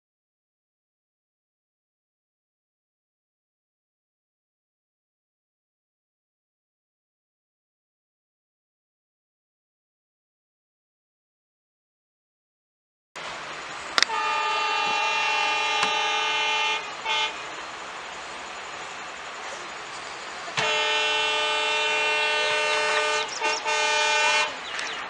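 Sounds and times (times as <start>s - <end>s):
steady background noise: 13.2s - 25.0s
locomotive horn blasts: 14.0s - 17.8s, 20.5s - 25.0s.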